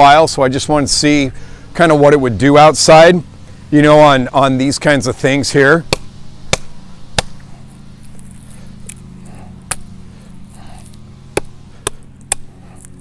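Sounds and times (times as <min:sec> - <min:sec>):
distant lawn mowers droning: 0:00.0 - 0:13.0
hatchet chopping into branch: 0:05.8 - 0:07.5, 0:08.1 - 0:09.9, 0:10.5 - 0:13.0.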